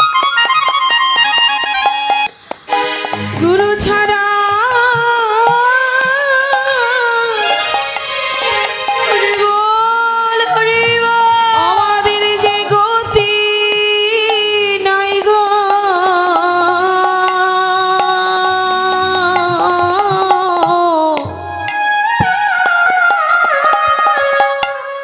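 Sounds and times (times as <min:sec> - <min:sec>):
drum strokes: 0:00.0 - 0:09.7, 0:10.8 - 0:24.8
instrumental accompaniment: 0:00.0 - 0:25.0
woman singing long sliding notes: 0:03.2 - 0:21.7.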